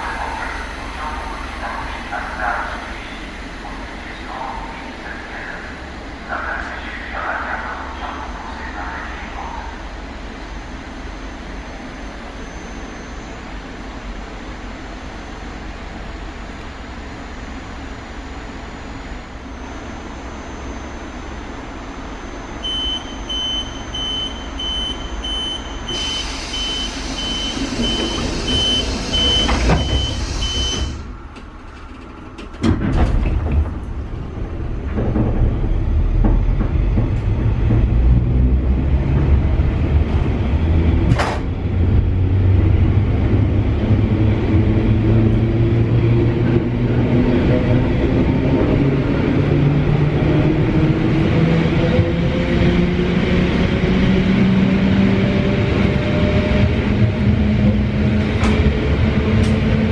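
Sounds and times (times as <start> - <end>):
loud low train rumble: 0.0 - 59.9
rapid high warning beeps: 2.1 - 31.0
train doors shutting: 22.6 - 42.2, 55.1 - 59.9.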